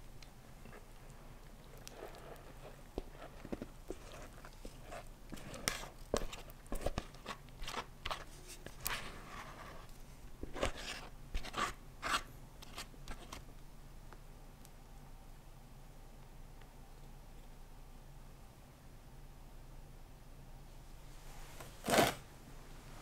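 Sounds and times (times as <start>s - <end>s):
spatula scraping filling: 0.7s - 13.4s.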